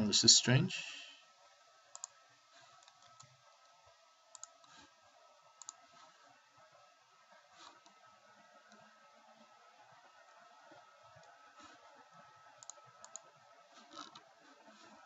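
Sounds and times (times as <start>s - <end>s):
mouse and keyboard clicks: 4.3s - 4.8s.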